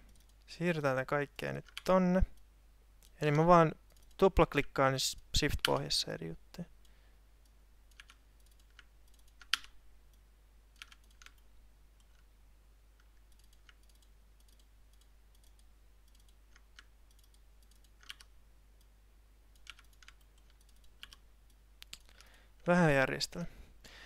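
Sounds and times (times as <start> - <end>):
faint low hum: 0.0 - 24.0
mouse clicks: 6.8 - 10.2, 13.0 - 18.9, 19.6 - 22.4.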